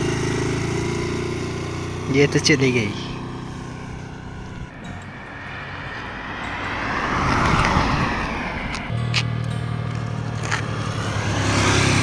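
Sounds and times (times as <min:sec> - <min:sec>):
car passing by: 0:04.0 - 0:12.0.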